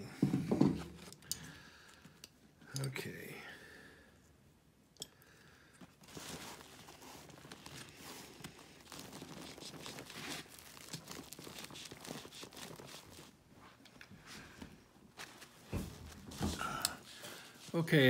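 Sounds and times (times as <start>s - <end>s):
fabric strap rustling: 5.8s - 17.8s.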